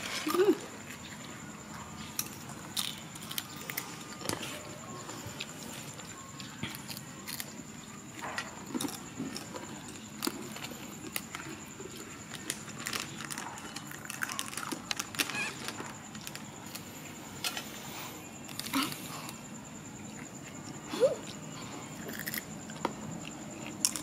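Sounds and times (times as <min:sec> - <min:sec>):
faint high-pitched tone: 0:03.6 - 0:08.4.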